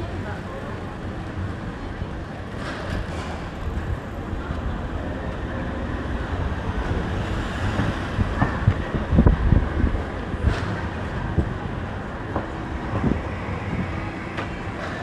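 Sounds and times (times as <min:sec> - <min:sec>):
road traffic hum: 0:00.0 - 0:15.0.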